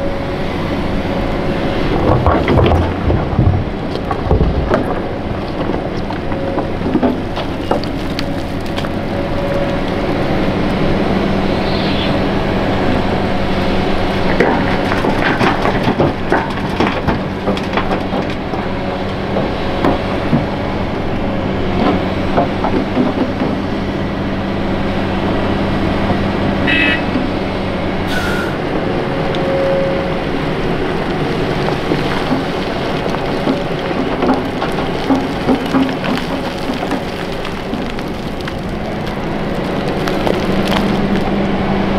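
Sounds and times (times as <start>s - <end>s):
excavator diesel engine under load: 0.0s - 41.9s
soil and stones knocking: 1.8s - 10.8s, 14.0s - 20.8s, 21.7s - 23.7s, 30.8s - 41.7s
brief squeal: 11.5s - 12.2s, 28.1s - 28.6s.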